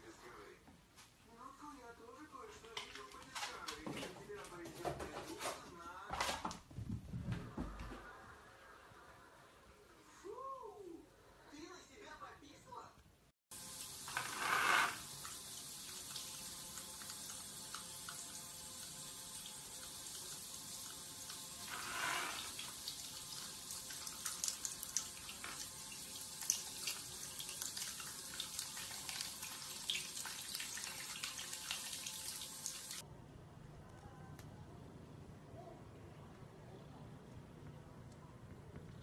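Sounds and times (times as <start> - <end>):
shower spray hissing: 13.5 - 23.7.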